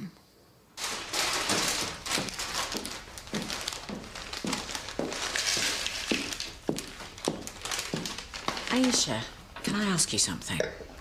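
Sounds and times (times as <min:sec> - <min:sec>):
plastic bag crinkling: 0:00.8 - 0:09.4
footsteps on hard floor: 0:01.5 - 0:09.1.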